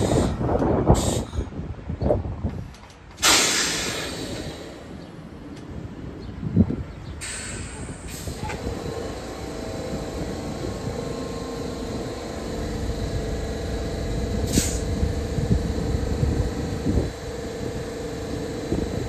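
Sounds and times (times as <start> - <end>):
short air hisses: 0.0 - 1.5, 3.2 - 4.9, 7.2 - 8.5, 14.4 - 14.9
subway train mechanical hum: 0.0 - 19.0.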